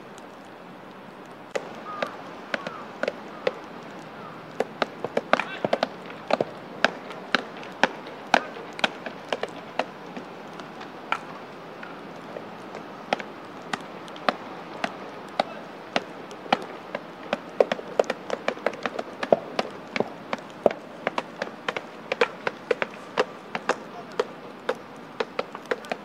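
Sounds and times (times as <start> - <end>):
baseballs cracking and popping: 1.3 - 26.0.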